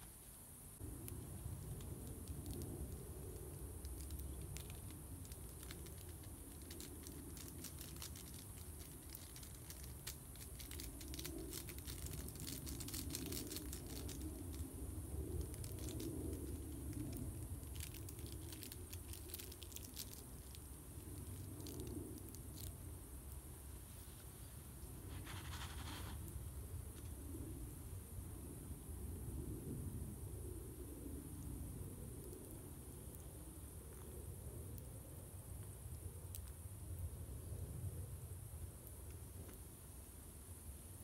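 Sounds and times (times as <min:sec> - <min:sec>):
dry twigs crackling in stove: 0:00.9 - 0:23.4.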